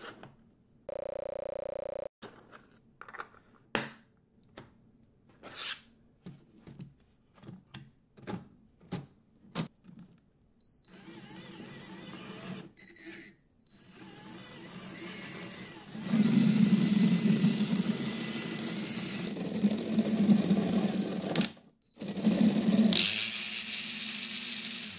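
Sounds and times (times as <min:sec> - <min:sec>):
short buzzing tone: 0:00.9 - 0:02.1
small motor whirring: 0:22.9 - 0:24.9.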